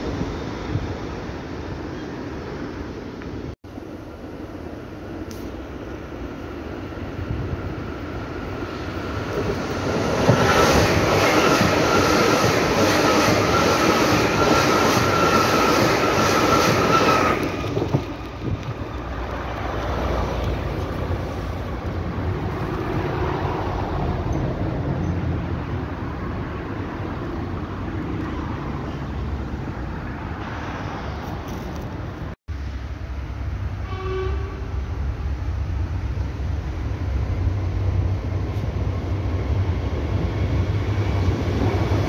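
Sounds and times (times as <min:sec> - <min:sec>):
low rumble of distant train: 0:00.0 - 0:42.0
train wheel squeal: 0:09.3 - 0:18.3.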